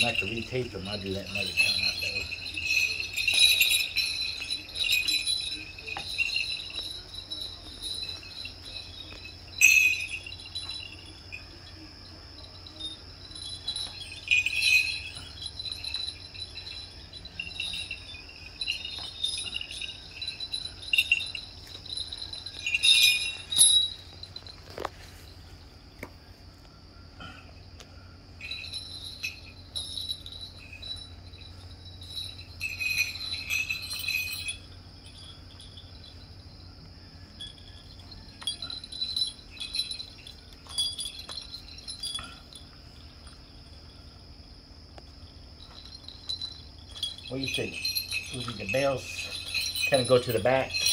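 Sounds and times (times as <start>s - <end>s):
leg bells jingling: 0.0s - 50.9s.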